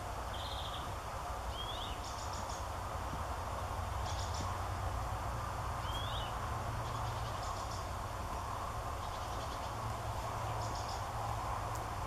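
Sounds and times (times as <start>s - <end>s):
low rumble and hiss: 0.0s - 12.0s
bird chirp: 0.3s - 0.9s, 1.5s - 2.7s, 3.9s - 4.6s, 5.8s - 8.0s, 8.6s - 11.2s
faint high twittering: 1.5s - 2.7s, 5.8s - 7.9s, 10.5s - 11.1s.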